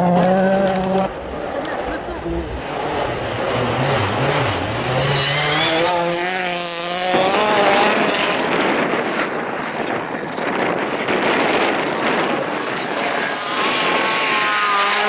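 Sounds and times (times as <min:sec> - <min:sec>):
engine and tyre roar: 0:00.0 - 0:15.0
rally car engine revving: 0:00.0 - 0:15.0.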